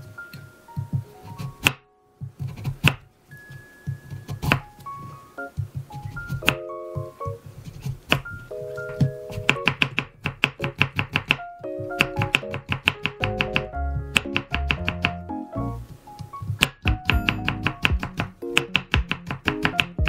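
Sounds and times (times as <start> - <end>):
knife chopping on wooden board: 1.6 - 3.0.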